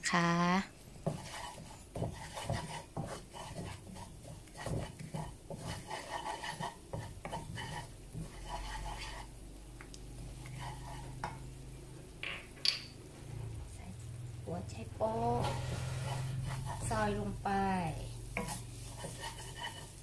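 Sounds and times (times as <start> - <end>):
wooden spatula scraping a wok: 1.0 - 9.4, 10.2 - 11.5, 15.0 - 20.0.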